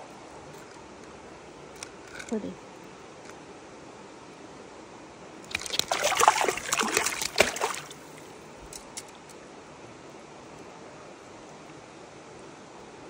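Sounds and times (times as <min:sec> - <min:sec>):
water splashing and sloshing: 0:05.4 - 0:08.8.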